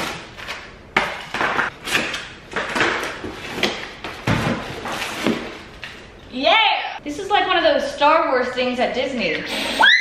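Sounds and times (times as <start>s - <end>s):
cardboard and packaging rustling: 1.2s - 6.0s.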